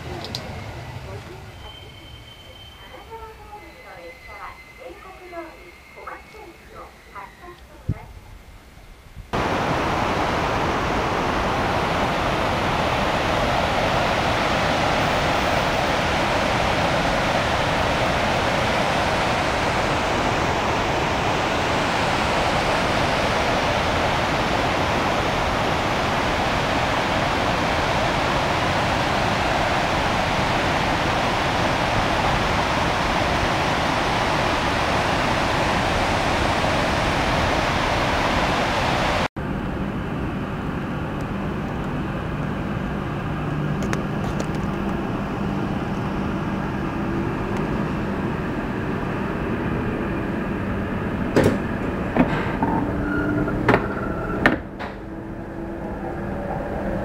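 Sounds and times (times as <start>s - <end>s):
muddy river rushing: 9.4s - 39.3s.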